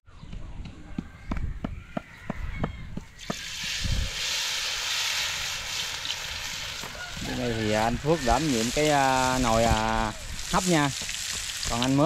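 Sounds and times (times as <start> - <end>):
food frying in hot oil: 3.2 - 12.0.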